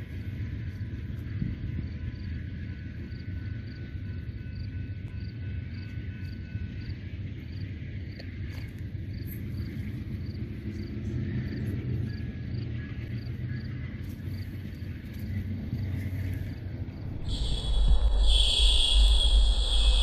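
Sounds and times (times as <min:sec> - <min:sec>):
crickets chirping: 0:00.0 - 0:20.0
low rumble: 0:15.0 - 0:20.0.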